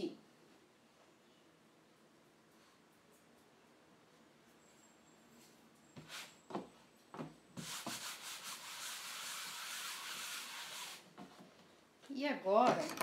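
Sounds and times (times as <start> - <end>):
steady brushing rub: 7.6 - 11.1.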